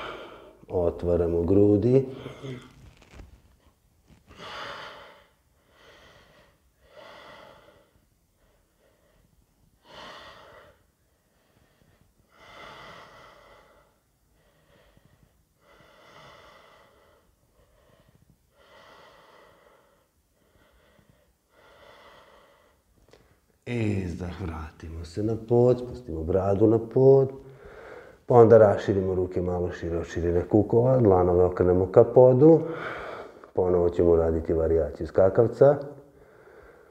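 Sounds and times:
man breathing slowly: 0:00.0 - 0:00.7, 0:04.2 - 0:23.6, 0:27.4 - 0:28.3, 0:32.6 - 0:33.6, 0:36.1 - 0:36.9.

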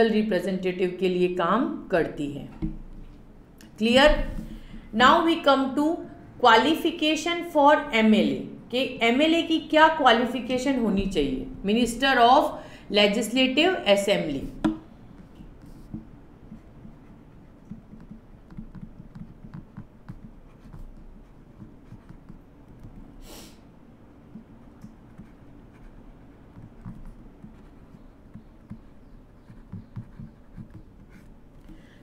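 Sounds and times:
stylus tapping and scratching tablet: 0:14.4 - 0:23.2, 0:24.2 - 0:31.8
short hiss: 0:23.2 - 0:23.6.

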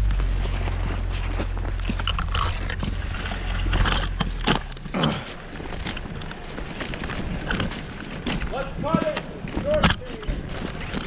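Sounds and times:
engine idling: 0:00.0 - 0:08.4
footsteps crunching snow: 0:00.0 - 0:11.0.

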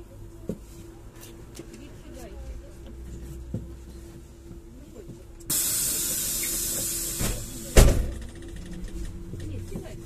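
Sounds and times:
pneumatic door air hiss: 0:05.5 - 0:08.2
doors shutting thump: 0:07.2 - 0:08.4.

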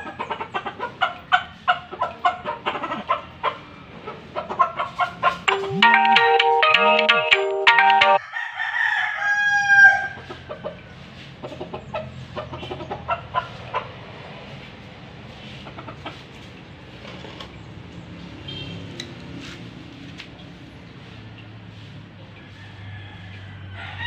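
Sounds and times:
chickens clucking: 0:00.0 - 0:05.6
rooster crowing: 0:08.2 - 0:10.2, 0:22.6 - 0:24.0.

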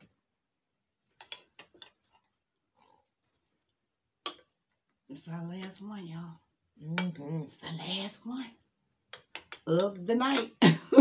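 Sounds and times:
cutlery clicking on bowls: 0:01.1 - 0:02.0, 0:04.2 - 0:04.5, 0:09.1 - 0:10.6.

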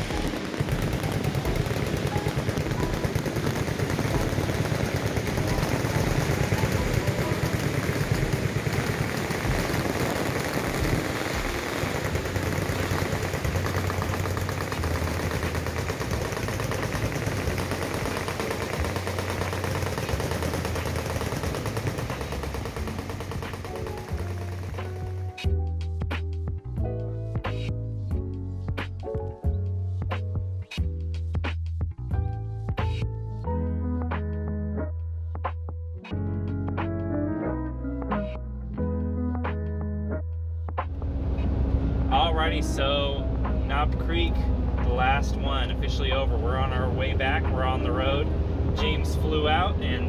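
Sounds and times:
machine guns firing full-auto: 0:00.0 - 0:25.4, 0:48.8 - 0:50.0.

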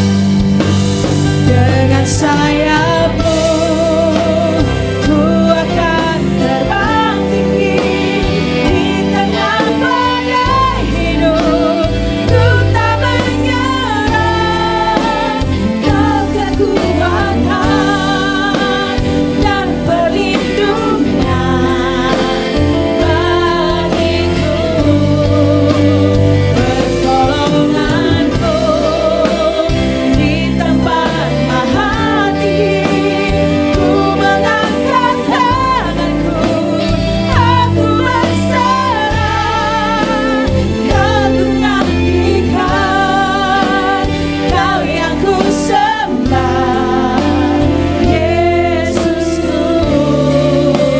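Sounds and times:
bass and drums accompaniment: 0:00.0 - 0:50.9
women singing worship song: 0:00.0 - 0:50.9.

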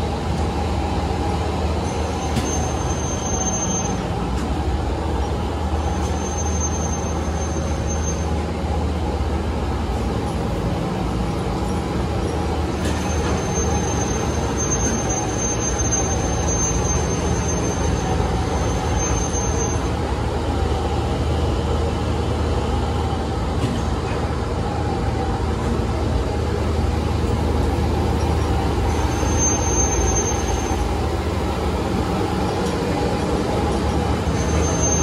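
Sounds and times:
metalworking machinery running: 0:00.0 - 0:35.0
thin high whine: 0:28.0 - 0:35.0.

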